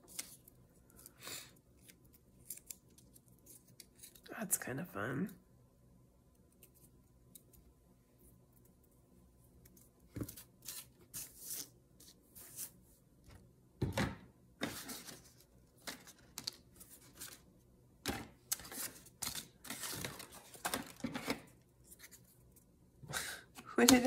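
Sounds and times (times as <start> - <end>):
paper rustling and crinkling: 14.6 - 17.5, 18.1 - 22.3.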